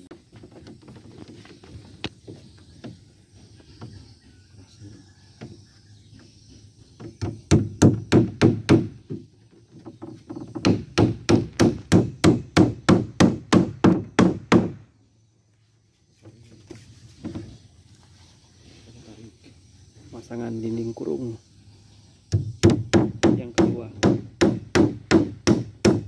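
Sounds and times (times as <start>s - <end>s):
hammer driving nails into wood: 22.3s - 26.0s.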